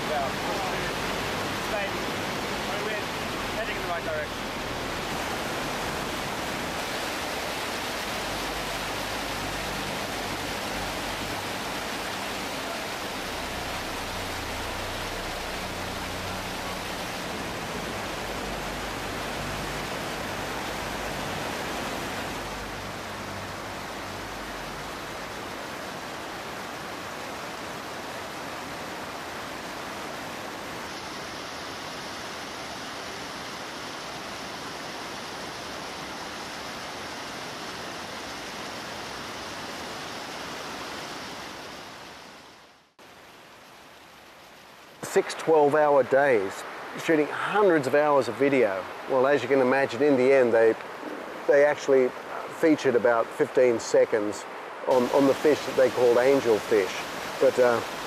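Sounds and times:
water rushing over rocks: 0.0 - 58.0.

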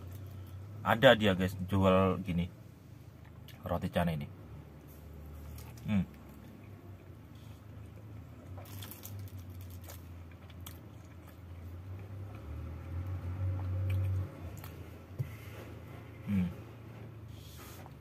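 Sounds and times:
chewing flaky bread: 5.3 - 18.0
wet mouth clicks: 13.7 - 14.8.

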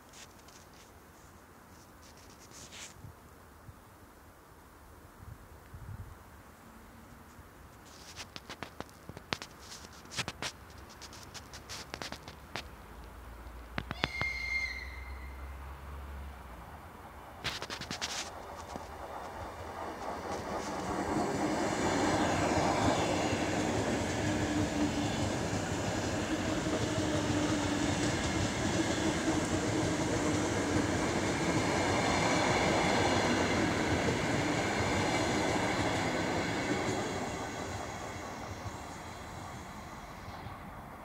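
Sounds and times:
electric train passing: 14.4 - 41.0.

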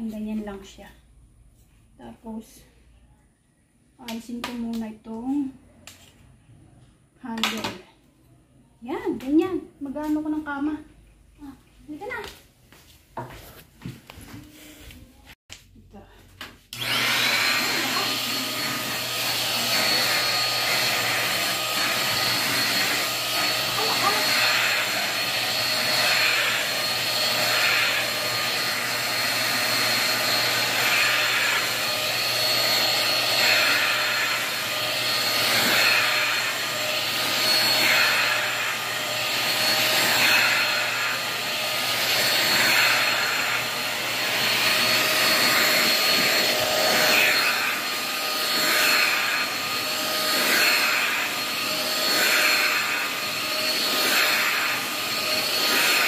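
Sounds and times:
handheld vacuum cleaner running: 16.7 - 56.0.

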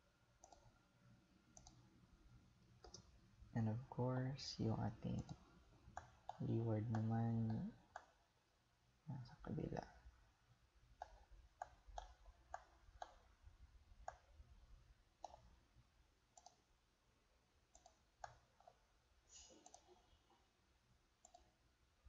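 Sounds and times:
faint computer mouse clicks: 0.4 - 0.7, 1.6 - 1.8, 2.8 - 3.1, 16.4 - 16.6, 21.2 - 21.5.

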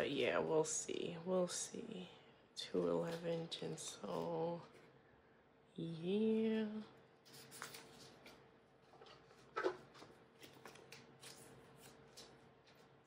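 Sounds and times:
plastic card sleeves rustling: 9.0 - 13.0.

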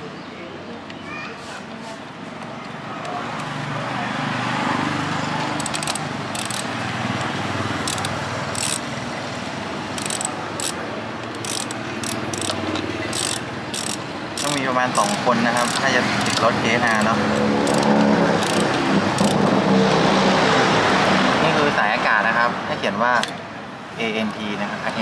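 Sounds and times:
ratchet wrench clicking: 5.6 - 19.4.

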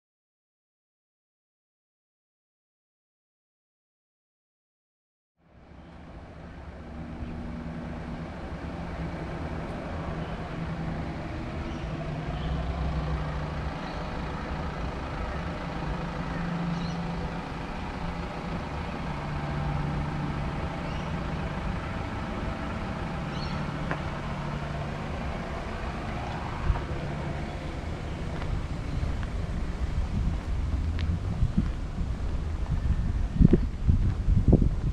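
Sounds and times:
traffic rumble: 5.4 - 34.9
bird chirps: 11.6 - 12.7, 13.8 - 14.1, 16.4 - 17.1, 20.8 - 21.2, 23.3 - 23.7.

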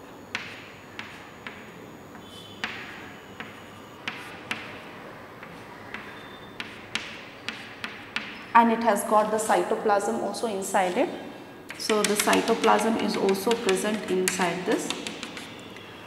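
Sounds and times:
chalk tapping on a chalkboard: 2.2 - 4.8, 5.4 - 8.4, 11.7 - 15.9.

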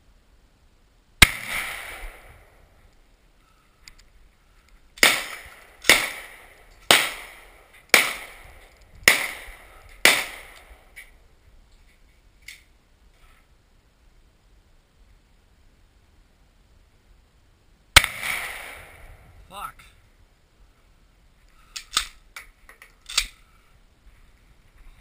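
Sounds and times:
gunshots with echo: 1.2 - 2.5, 5.0 - 10.8, 18.0 - 19.1
faint clicks: 2.9 - 4.8.

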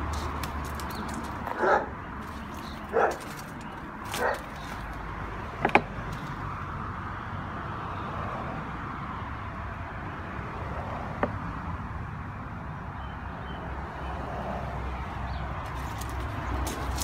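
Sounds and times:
dog barking: 1.5 - 2.0, 2.9 - 3.3, 4.1 - 4.6.

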